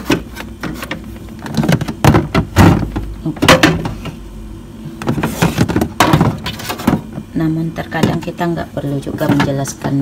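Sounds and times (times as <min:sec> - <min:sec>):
knocks and thuds in refrigerator: 0:00.0 - 0:04.2, 0:05.0 - 0:07.2, 0:07.9 - 0:08.3, 0:09.1 - 0:09.7.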